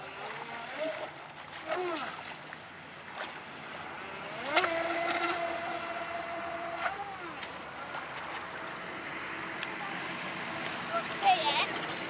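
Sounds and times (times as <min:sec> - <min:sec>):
electric motor whine: 0:03.8 - 0:07.8.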